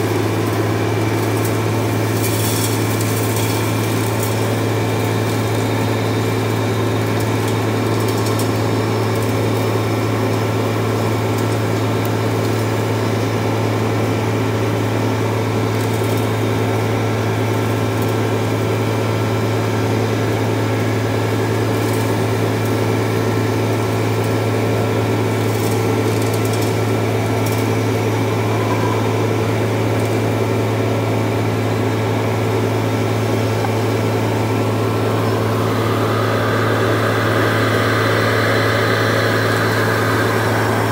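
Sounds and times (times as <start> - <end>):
truck engine and blower drone: 0.0 - 40.9.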